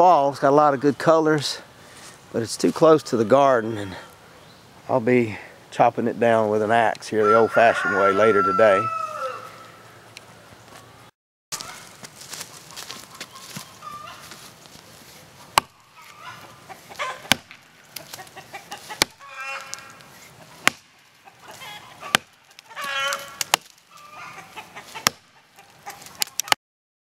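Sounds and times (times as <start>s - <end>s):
chickens clucking: 11.6s - 26.6s
axe chopping tree trunk: 15.5s - 15.9s, 16.8s - 24.0s, 24.9s - 25.4s.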